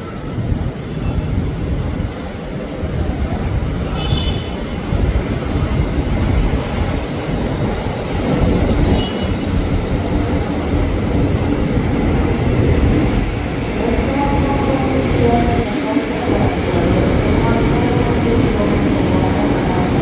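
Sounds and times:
electric train rumble: 0.0 - 20.0.

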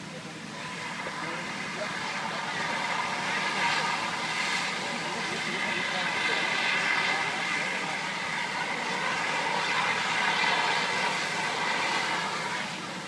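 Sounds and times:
fire truck engines droning: 0.0 - 13.0.

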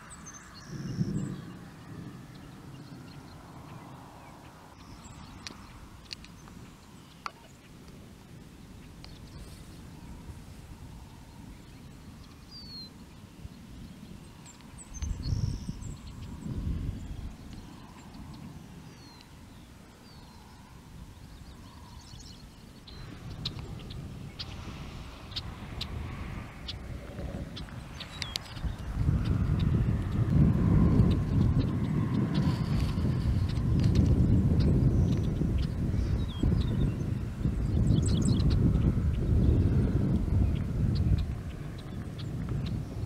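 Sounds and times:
distant rolling thunder: 0.0 - 6.8, 22.9 - 43.0
bird chirp: 0.0 - 7.9, 8.5 - 43.0
low uneven rumble: 0.0 - 43.0
songbirds calling: 0.0 - 43.0
small sharp clicks: 5.4 - 6.6.

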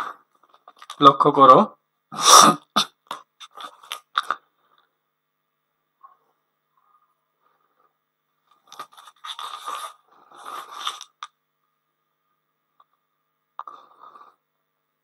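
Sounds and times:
marker scraping on whiteboard: 8.8 - 11.2.

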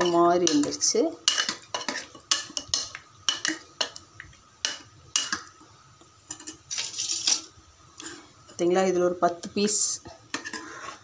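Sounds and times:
metal ladle scraping pot: 6.3 - 8.2, 10.3 - 11.0.

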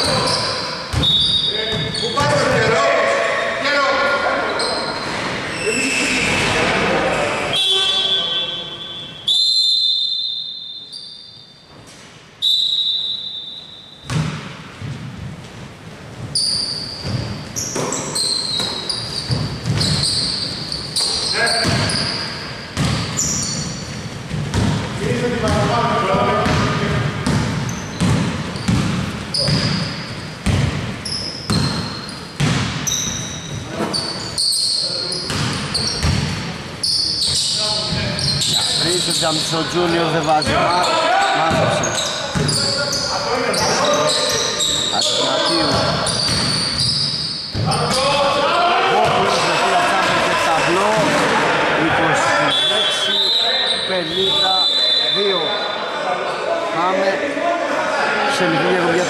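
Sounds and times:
sneaker squeaks: 0.0 - 2.8, 4.3 - 6.7, 7.3 - 15.3, 16.2 - 48.2, 52.3 - 56.4
shrill referee's whistle: 0.3 - 2.2, 7.5 - 11.6, 12.4 - 14.1, 32.9 - 35.0, 52.4 - 55.8
basketball bouncing on court: 0.9 - 2.7, 14.0 - 15.4, 17.0 - 20.4, 21.0 - 34.0, 35.3 - 36.6, 41.4 - 42.7, 45.6 - 46.9, 47.5 - 48.0
basketball bouncing on hardwood: 22.8 - 23.1, 26.4 - 29.8, 30.4 - 30.9, 32.4 - 32.8.

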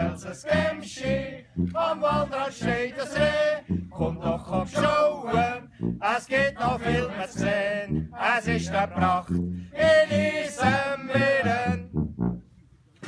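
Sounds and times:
man singing unaccompanied: 0.0 - 11.9
man breathing: 5.6 - 6.0, 9.5 - 9.8.

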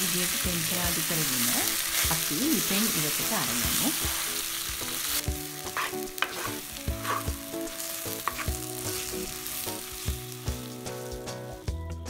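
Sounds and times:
mixture sizzling in oil: 0.0 - 11.7
wooden spoon scraping a pot: 5.6 - 9.4.

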